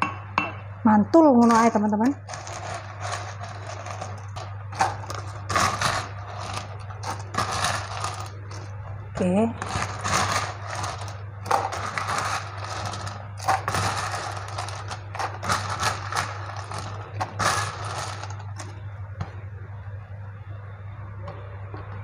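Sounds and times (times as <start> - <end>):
steady low hum: 0.0 - 22.0
ice cubes clattering: 1.5 - 8.7, 9.6 - 18.8.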